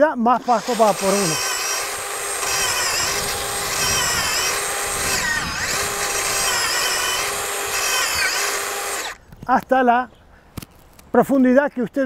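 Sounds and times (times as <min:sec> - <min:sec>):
cordless drill auger whining: 0:00.4 - 0:09.2.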